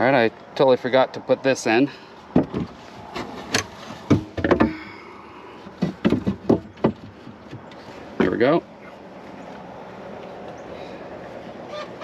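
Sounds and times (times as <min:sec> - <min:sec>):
wooden board knocking and scraping: 0:02.3 - 0:05.0, 0:05.6 - 0:07.9.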